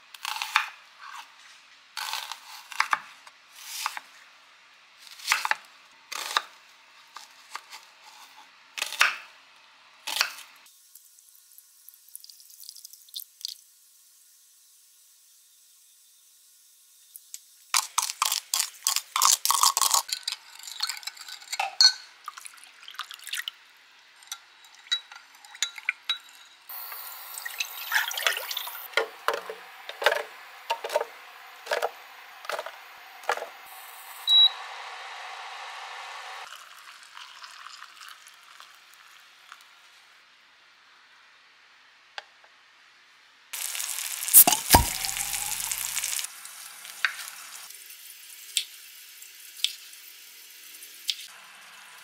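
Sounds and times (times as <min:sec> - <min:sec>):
metal spoon clinking against glass: 0:20.1 - 0:22.1
sauce pouring into saucepan: 0:22.2 - 0:23.6, 0:26.7 - 0:28.9, 0:36.4 - 0:39.6, 0:43.6 - 0:51.5.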